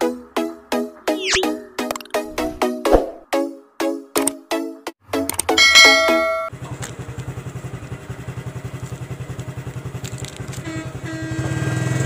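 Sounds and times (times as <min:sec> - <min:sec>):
music jingle: 0:00.9 - 0:03.5, 0:05.1 - 0:06.5
motorcycle engine idling: 0:05.9 - 0:12.0.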